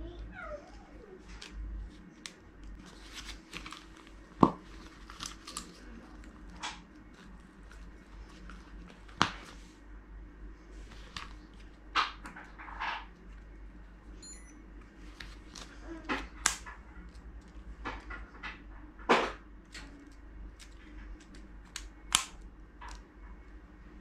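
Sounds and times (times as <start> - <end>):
faint short beep: 14.2 - 14.6.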